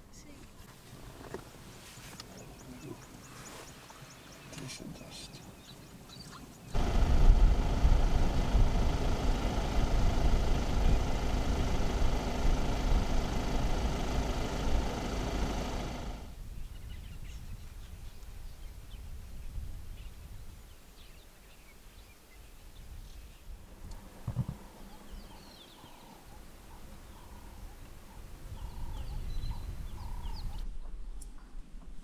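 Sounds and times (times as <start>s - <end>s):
vehicle engine running: 6.8s - 16.4s.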